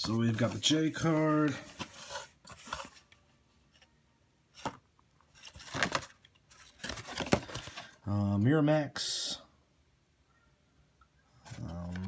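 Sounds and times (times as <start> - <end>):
card rustling in hands: 0.0 - 8.0.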